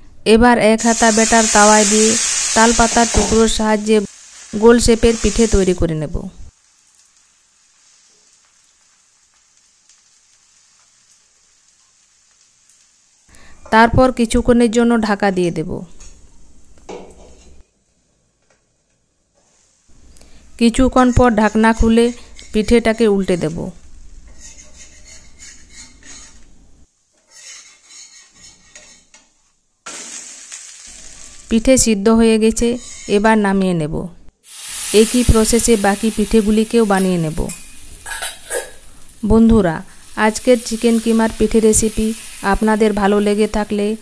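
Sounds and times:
batter sizzling on hot iron: 0.8s - 13.3s, 21.0s - 26.6s, 29.8s - 31.9s, 34.4s - 44.0s
metal spatula scraping a griddle: 22.2s - 23.6s, 24.2s - 26.6s, 27.2s - 31.5s, 32.6s - 33.3s.

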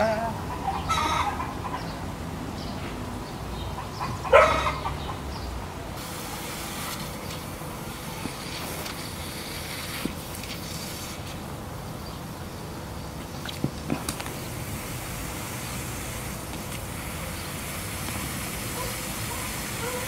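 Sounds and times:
dog woo calls: 4.1s - 4.9s, 18.7s - 20.0s
water spraying hiss: 6.0s - 11.6s, 13.2s - 20.0s.

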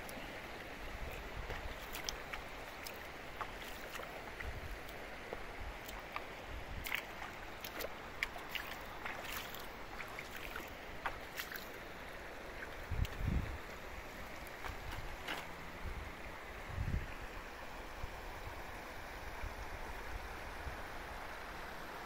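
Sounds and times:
water splashing from wading: 0.0s - 16.2s
river current rushing: 0.0s - 16.7s.

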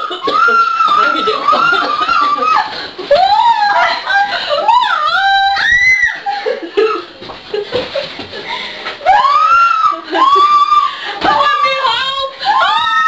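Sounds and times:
women shrieking and laughing: 0.0s - 13.0s.

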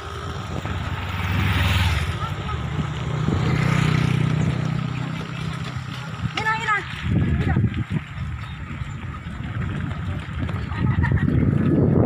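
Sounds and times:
vehicle engine revving: 0.0s - 6.6s.

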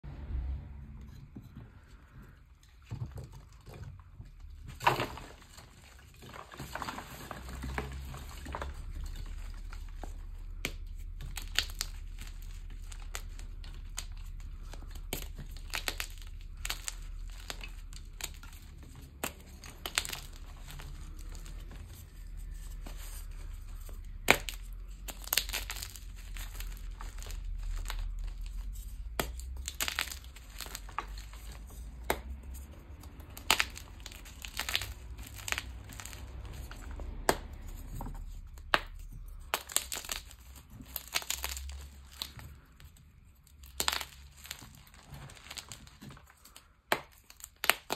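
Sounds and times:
chalk blocks crunching: 1.1s - 47.9s
chalk cracking: 6.7s - 42.7s.

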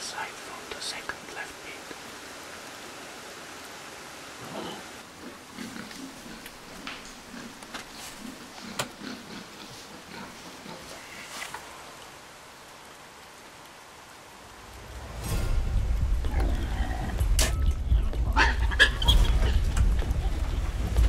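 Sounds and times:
steady hiss: 0.0s - 21.0s
wild boar grunting: 4.4s - 11.3s.

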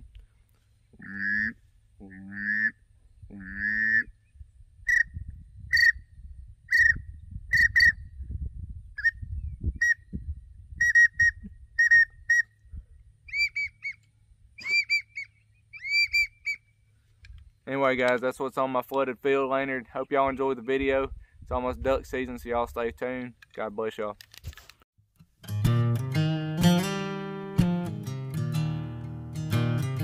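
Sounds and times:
duck whistle peeps: 3.4s - 4.1s, 4.8s - 6.0s, 6.7s - 8.0s, 9.0s - 9.2s, 9.8s - 10.0s, 10.8s - 12.6s, 13.3s - 14.0s, 14.6s - 16.7s.

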